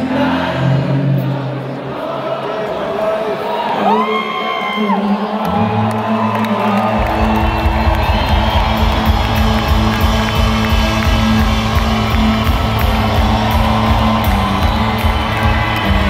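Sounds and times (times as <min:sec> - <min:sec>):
crowd cheering and whooping: 0:03.4 - 0:16.0
rock band playing loud: 0:06.9 - 0:16.0.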